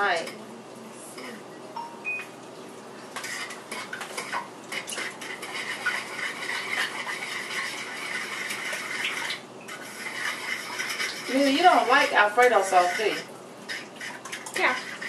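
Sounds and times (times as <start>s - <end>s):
cheese grating on metal grater: 3.2s - 15.0s.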